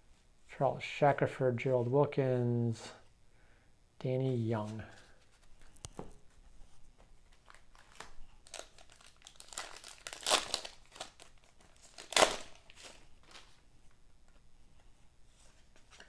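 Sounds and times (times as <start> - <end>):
wrapper crinkling: 7.2 - 13.6
loud wrapper rip: 7.8 - 13.0.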